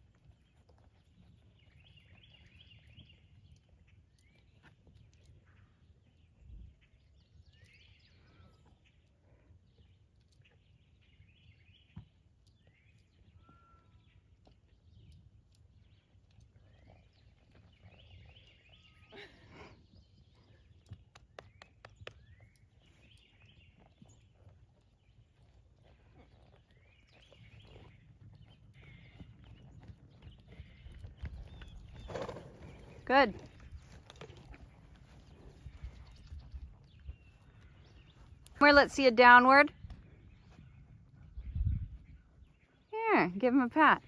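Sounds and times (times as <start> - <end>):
birds chirping: 0.2 - 44.0.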